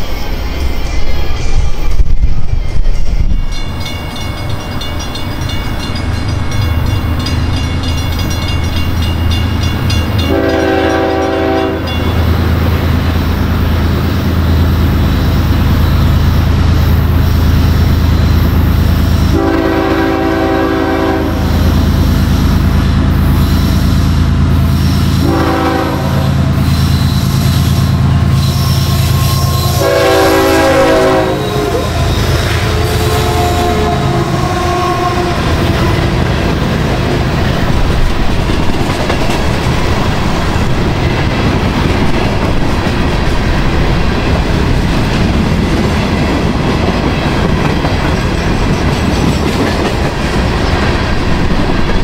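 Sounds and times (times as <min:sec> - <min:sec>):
train rumbling: 0:00.0 - 0:52.0
locomotive horn blasts: 0:10.2 - 0:12.1, 0:19.2 - 0:21.5, 0:25.2 - 0:26.5, 0:28.4 - 0:36.1.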